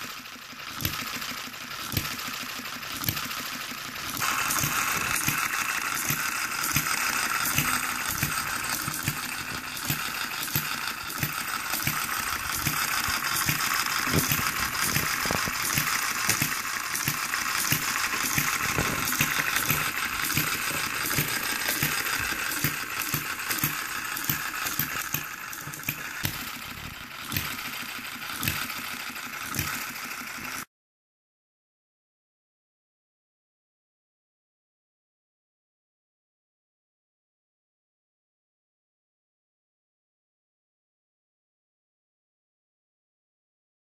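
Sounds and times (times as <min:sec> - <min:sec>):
small engine clattering: 0:00.0 - 0:30.7.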